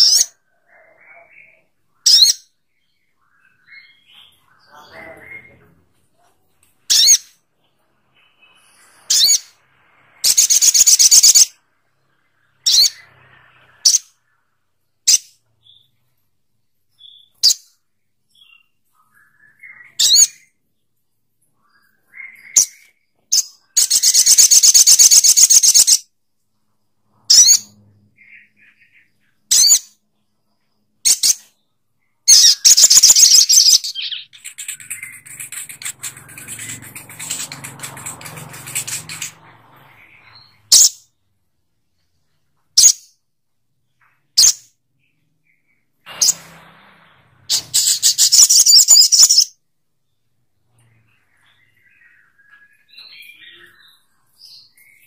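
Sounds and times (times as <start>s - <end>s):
sunbird singing: 31.2s - 41.0s, 47.5s - 55.0s.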